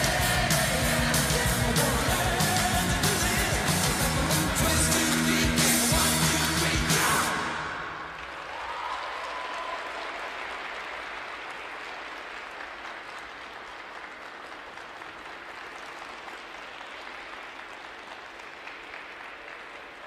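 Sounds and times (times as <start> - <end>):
music: 0.0 - 8.1
audience applauding: 0.0 - 20.0.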